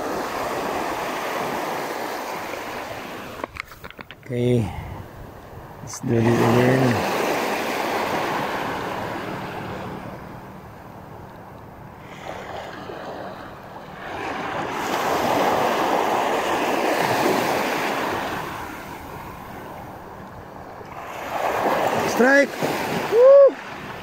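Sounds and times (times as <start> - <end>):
wind on microphone: 0.0 - 10.5
small waves washing on beach: 0.0 - 24.0.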